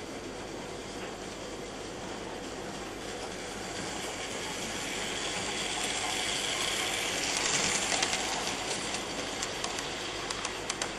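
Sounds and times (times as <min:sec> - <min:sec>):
model train motor and wheels whirring: 0:02.2 - 0:10.9
sharp clicks: 0:09.4 - 0:10.9.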